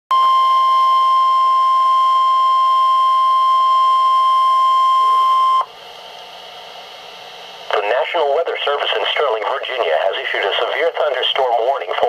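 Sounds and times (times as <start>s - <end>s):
radio alarm tone beep: 0.1s - 5.7s.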